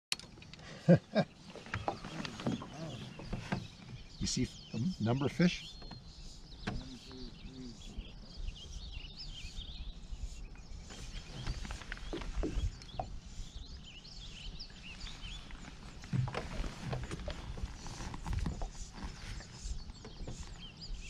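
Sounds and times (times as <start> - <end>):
small birds chirping: 0.2 - 21.0
light knocks: 6.6 - 7.0.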